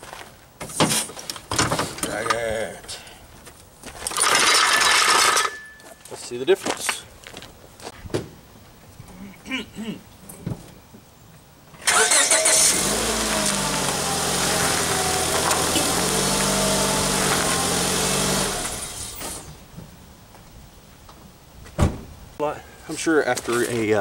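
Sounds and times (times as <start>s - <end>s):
car engine starting and running: 11.8s - 19.6s.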